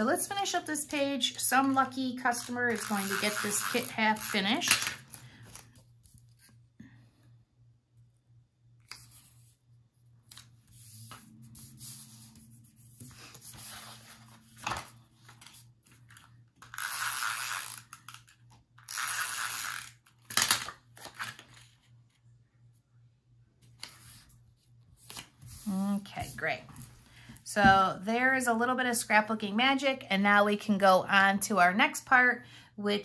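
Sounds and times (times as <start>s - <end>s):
tape runner rasping on paper: 2.7s - 4.5s.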